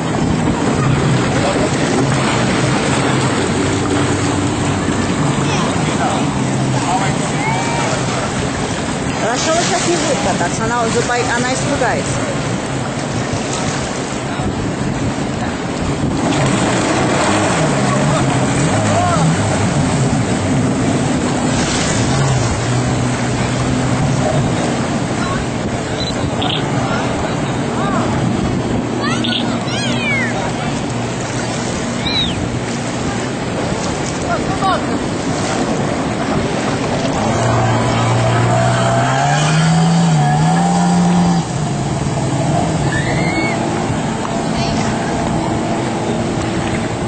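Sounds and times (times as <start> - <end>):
wind noise: 0.0 - 38.6
jet ski engines droning: 0.0 - 47.0
rushing water: 0.0 - 47.0.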